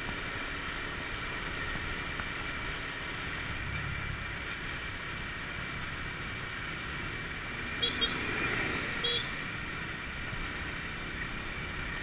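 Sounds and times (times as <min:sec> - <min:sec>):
scooter motor at speed: 0:07.2 - 0:11.4.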